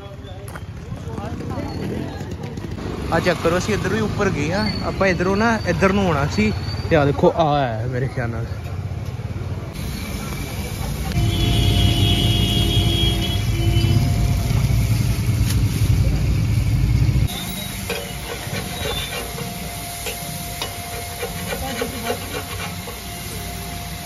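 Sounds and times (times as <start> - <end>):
food sizzling on a griddle: 17.3 - 24.0
metal spatula scraping a griddle: 17.6 - 23.1.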